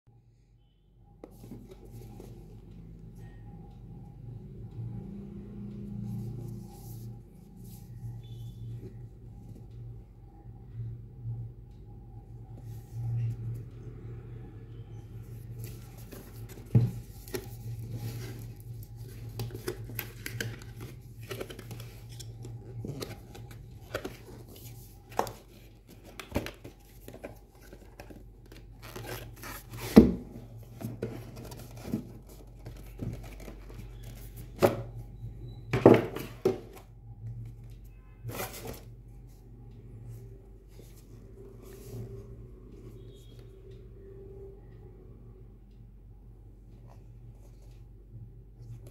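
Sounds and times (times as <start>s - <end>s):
cardboard box rustling and scraping: 29.0s - 34.6s.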